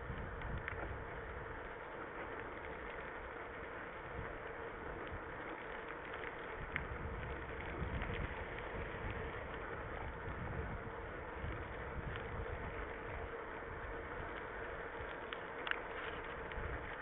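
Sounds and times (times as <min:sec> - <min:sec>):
wind rushing on microphone: 0:00.0 - 0:01.6, 0:06.5 - 0:14.6
bike clicks and rattles: 0:00.0 - 0:17.0
tyres rumbling on gravel: 0:00.0 - 0:17.0.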